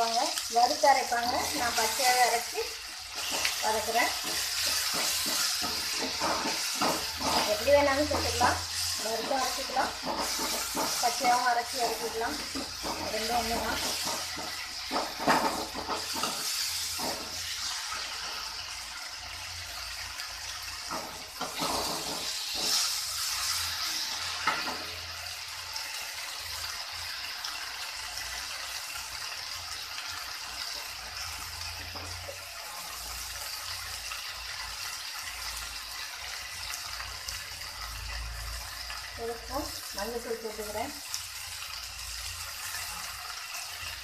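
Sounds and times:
paste sizzling in oil: 0:00.0 - 0:44.0
ladle scraping and knocking pan: 0:03.1 - 0:11.4, 0:12.4 - 0:17.6, 0:20.9 - 0:23.3.

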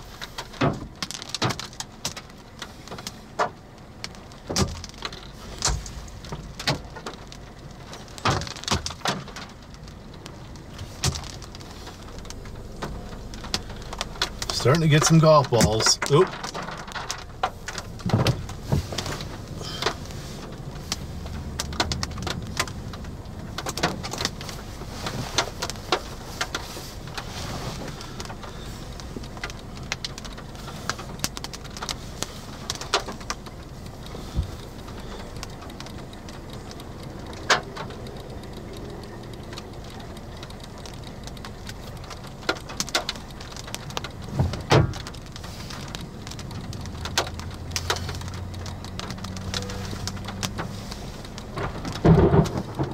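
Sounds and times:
hail hitting car roof: 0:00.0 - 0:52.9
loud hail hits: 0:51.6 - 0:52.9.

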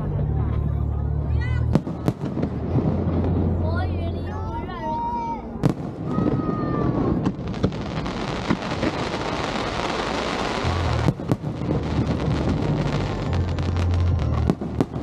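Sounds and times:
fireworks crackling: 0:01.6 - 0:15.0
fireworks bangs: 0:01.7 - 0:03.9, 0:05.5 - 0:15.0.

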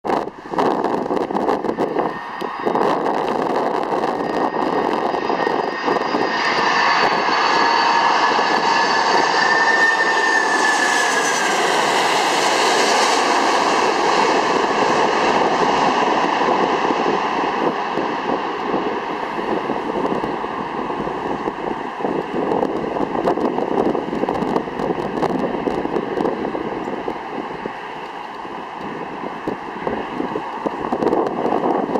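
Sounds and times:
jet airliner roar with whine: 0:00.0 - 0:31.9.

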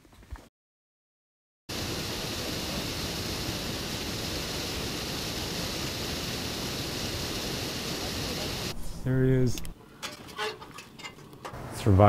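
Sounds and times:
waterfall rushing: 0:01.7 - 0:08.8.

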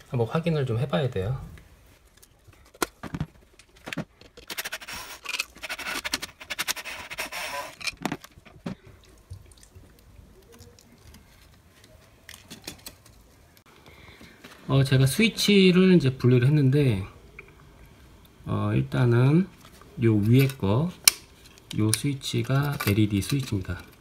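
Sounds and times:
screwdriver scraping plastic: 0:04.2 - 0:08.3.

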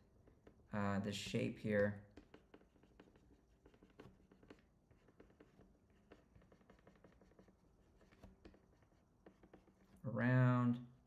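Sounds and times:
stylus tapping on drawing tablet: 0:02.1 - 0:10.0.

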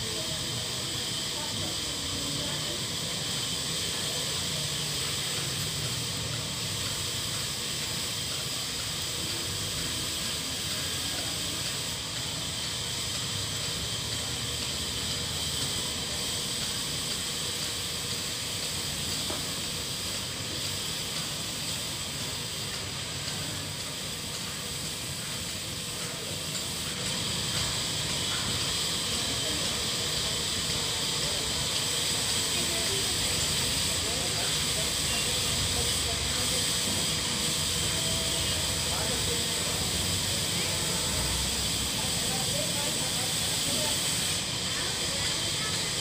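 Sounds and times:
high-pitched hiss: 0:00.0 - 0:46.0.

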